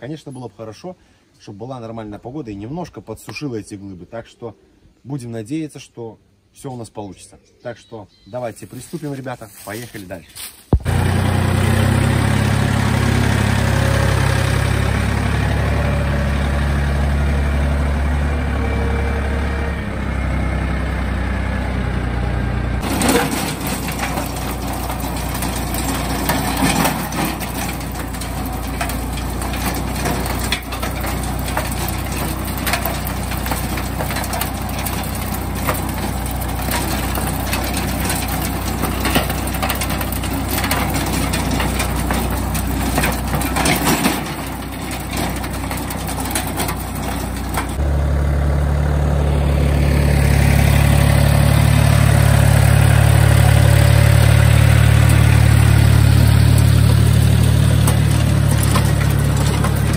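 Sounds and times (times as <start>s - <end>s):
tractor diesel engine: 8.8s - 59.9s
tiller knocks and clatters: 9.5s - 18.8s, 22.8s - 48.4s, 49.3s - 59.9s.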